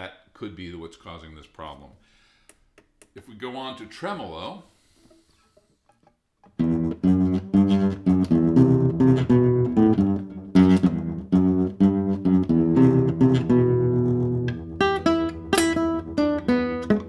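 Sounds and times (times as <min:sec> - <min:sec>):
classical guitar with tremolo: 0:05.1 - 0:17.0.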